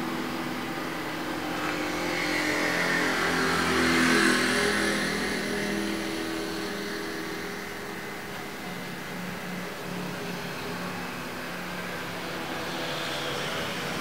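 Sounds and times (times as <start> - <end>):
steady background hum: 0.0 - 14.0
vehicle engine passing by: 1.2 - 8.1.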